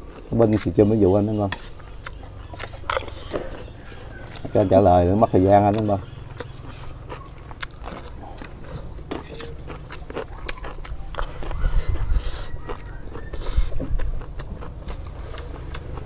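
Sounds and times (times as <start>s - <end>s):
chewing: 0.0s - 16.0s
spoons scraping metal trays: 0.4s - 6.0s, 8.7s - 9.6s.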